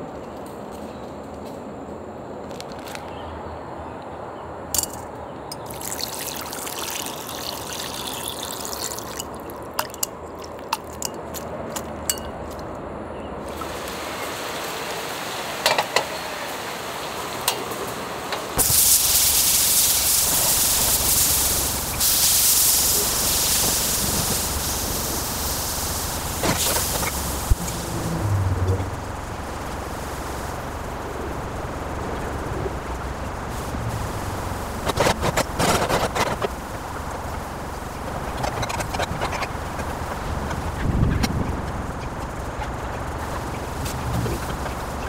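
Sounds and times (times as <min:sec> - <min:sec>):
water trickling and dripping: 0:05.5 - 0:11.8
butter sizzling in a frying pan: 0:05.7 - 0:09.6, 0:18.6 - 0:27.5.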